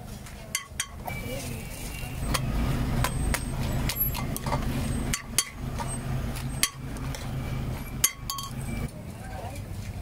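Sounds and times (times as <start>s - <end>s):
sharp clinks and knocks: 2.3s - 8.9s.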